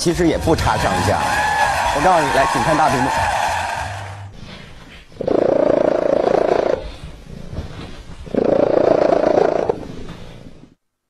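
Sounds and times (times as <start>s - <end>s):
cat purring loudly: 5.2s - 10.7s.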